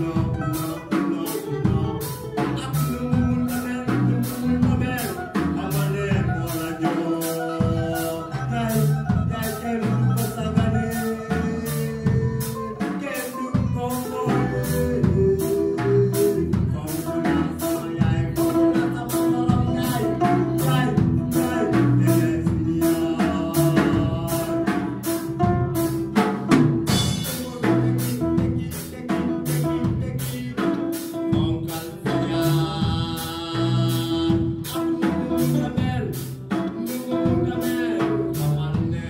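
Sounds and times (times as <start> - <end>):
electric bass: 0.0 - 12.8, 13.6 - 39.0
drum kit steady beat: 0.0 - 39.0
electric guitar: 0.0 - 39.0
man singing into a microphone: 0.0 - 39.0.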